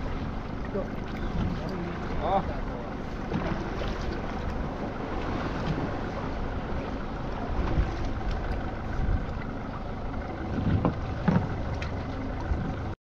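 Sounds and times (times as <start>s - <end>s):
water sloshing against hull: 0.0s - 13.0s
dull knocks: 10.5s - 11.6s.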